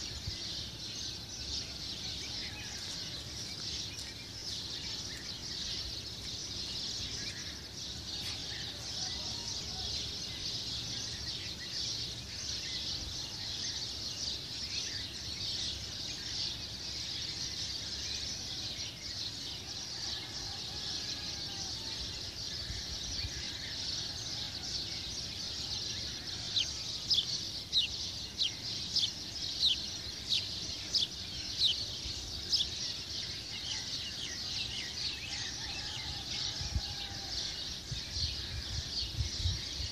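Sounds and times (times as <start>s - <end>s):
birdsong chorus: 0.0s - 39.9s.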